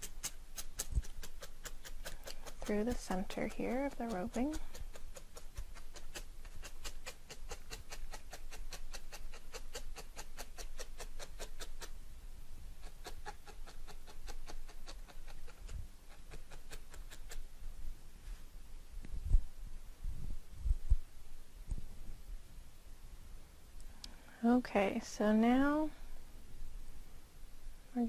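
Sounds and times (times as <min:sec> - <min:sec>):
felting needle stabbing into foam: 0:00.0 - 0:11.9.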